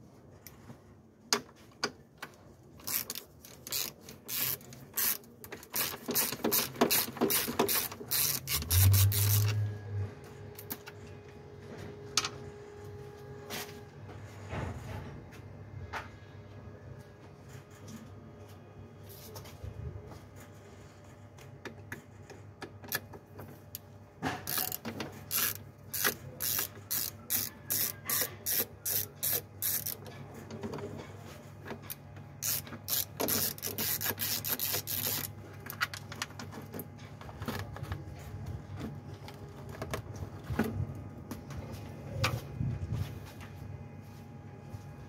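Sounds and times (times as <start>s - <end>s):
ratcheting mechanical clicks: 2.8s - 9.7s, 24.4s - 30.1s, 31.9s - 36.2s
steady low hum: 2.8s - 22.6s.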